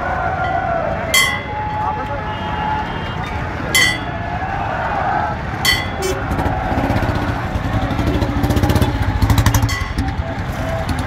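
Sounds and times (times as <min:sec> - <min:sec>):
motorcycle engines running: 0:02.5 - 0:11.0.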